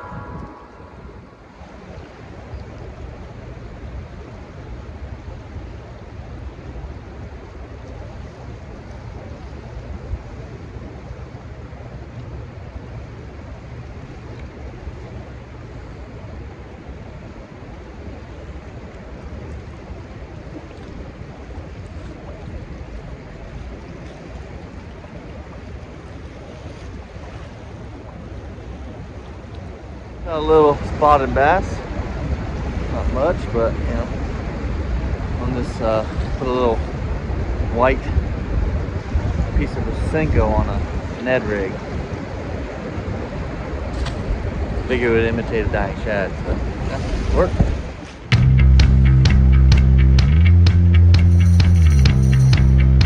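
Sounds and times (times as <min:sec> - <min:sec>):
rushing churning water: 0:00.0 - 0:48.4
wind rumbling on microphone: 0:00.0 - 0:50.0.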